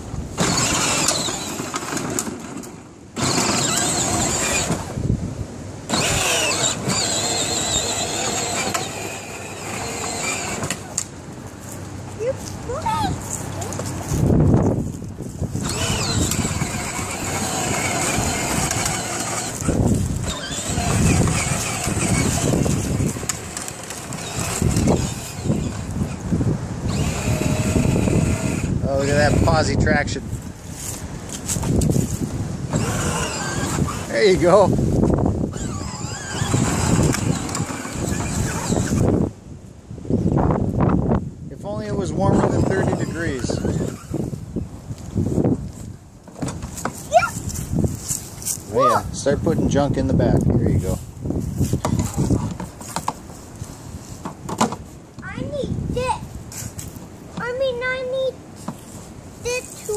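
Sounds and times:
toy car electric motor whining: 0.4 - 5.0, 5.9 - 11.1, 15.5 - 30.2, 32.7 - 34.7, 35.3 - 39.2, 41.8 - 44.4
wind buffeting microphone: 3.1 - 59.9.

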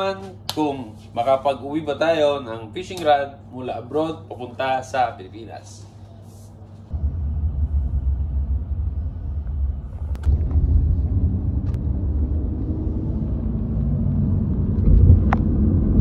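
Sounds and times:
road and engine rumble in car: 6.9 - 16.0.

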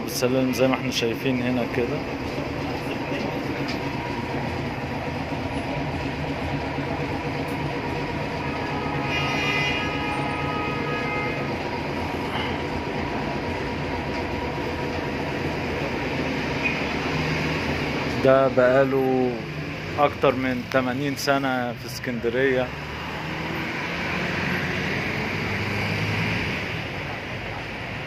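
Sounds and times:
tram rumble and hum: 0.0 - 28.0.

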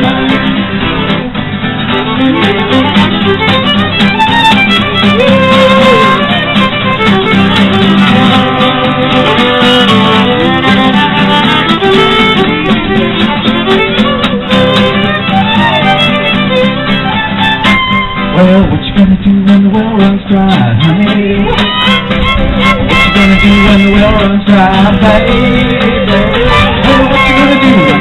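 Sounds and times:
acoustic guitar: 0.0 - 28.0
fiddle: 0.0 - 28.0.

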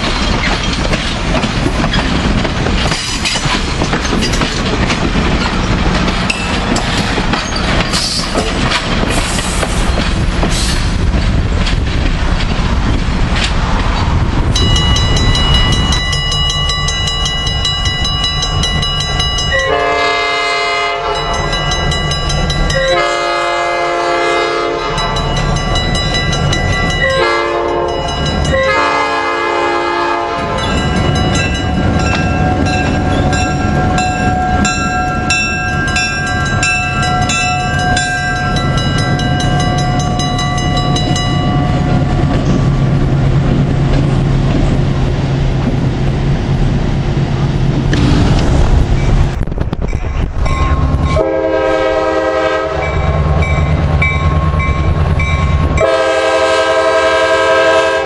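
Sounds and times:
locomotive horn chime: 14.6 - 42.0, 50.6 - 58.0
diesel engine and wheels passing: 24.6 - 51.1.

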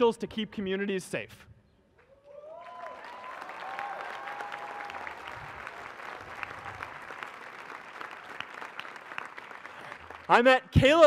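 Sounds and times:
large audience applauding: 2.3 - 10.5.

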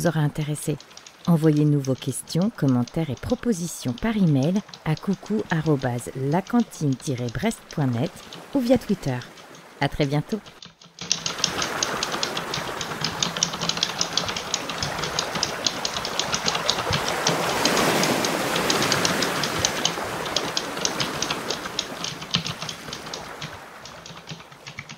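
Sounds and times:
keyboard typing: 0.0 - 24.9.

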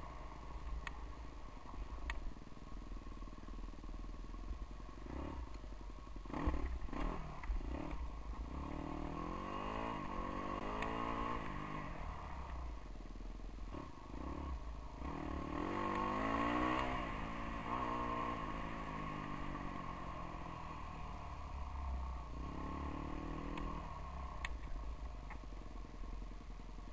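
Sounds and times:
steady low rumble: 0.0 - 10.6
dirt bike engine revving: 5.0 - 5.4, 6.3 - 11.9, 13.7 - 19.8.

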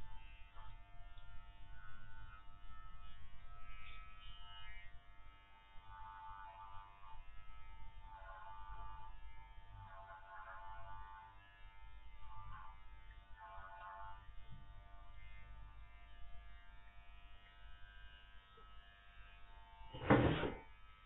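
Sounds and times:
electric clippers buzzing: 0.0 - 21.0.

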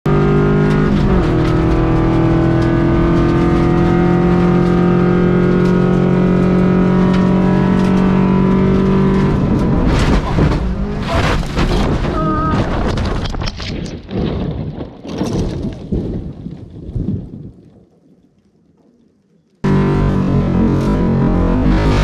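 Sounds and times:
rally car engine high revs: 0.1 - 11.5, 19.7 - 22.0
car crashing knocks: 9.8 - 16.2.

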